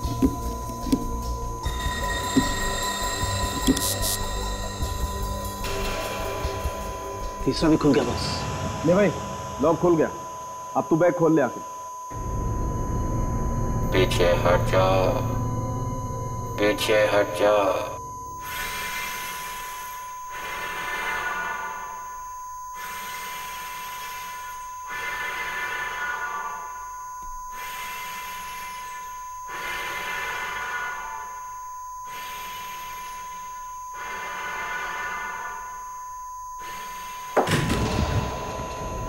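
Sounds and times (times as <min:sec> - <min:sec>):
steady high tone: 0:00.0 - 0:39.0
hissing swell: 0:12.1 - 0:21.9.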